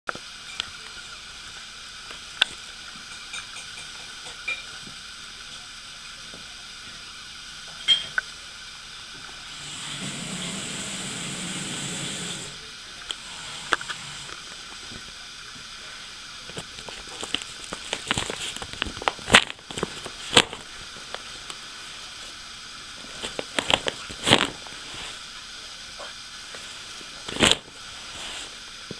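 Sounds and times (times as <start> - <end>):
steady hiss: 0.1 - 28.9
plastic bag crackling and rustling: 16.6 - 21.4, 23.0 - 25.2.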